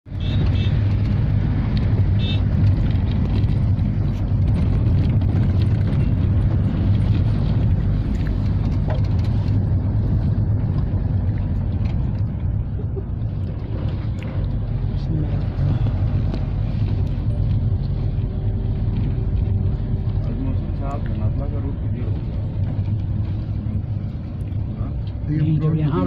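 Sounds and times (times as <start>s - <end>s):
engine and road rumble in cabin: 0.0s - 26.0s.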